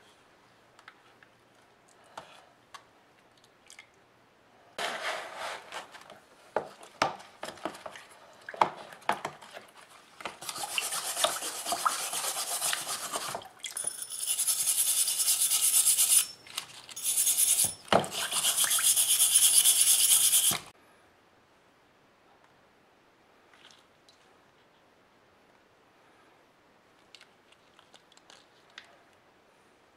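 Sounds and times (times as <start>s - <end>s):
scrubber rasping on metal: 14.1s - 16.4s, 17.0s - 20.6s.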